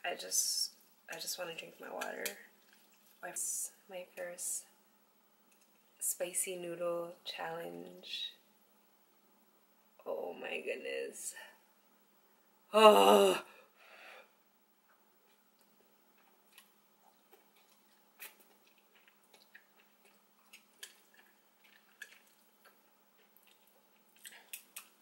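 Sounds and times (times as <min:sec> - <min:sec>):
mouth sounds eating noodles: 0:15.3 - 0:25.0.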